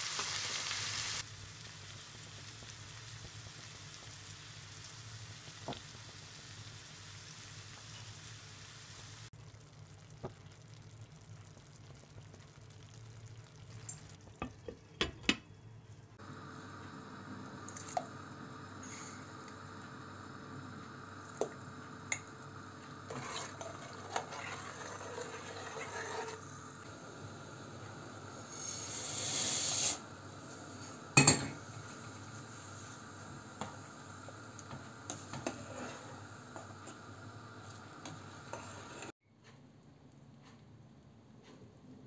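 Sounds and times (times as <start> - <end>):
water boiling in a pot: 0.0 - 15.5, 16.1 - 39.2
metal clank against pot: 31.2 - 31.6.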